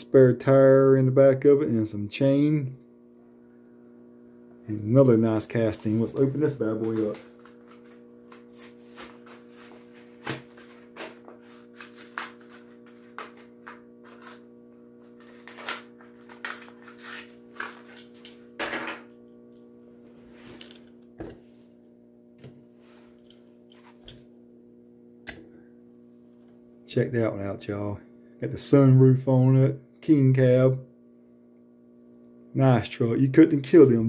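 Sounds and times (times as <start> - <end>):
motorized turntable hum: 0.0 - 34.0
plastic packaging crinkling and snapping: 15.1 - 18.4.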